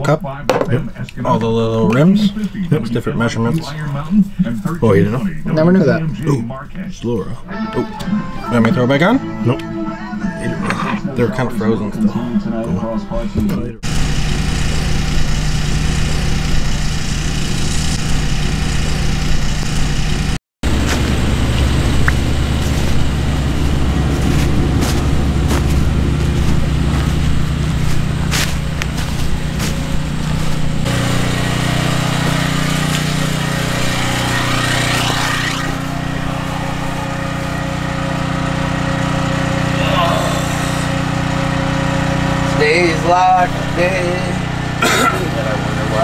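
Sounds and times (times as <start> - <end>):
truck engines idling: 13.8 - 46.0.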